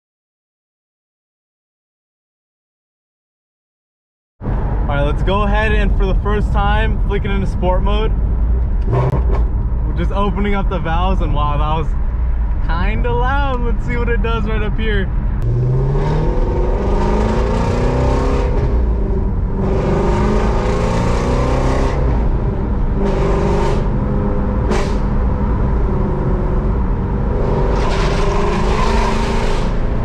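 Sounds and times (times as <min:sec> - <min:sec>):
car engine accelerating: 0:04.4 - 0:11.3, 0:15.1 - 0:30.0.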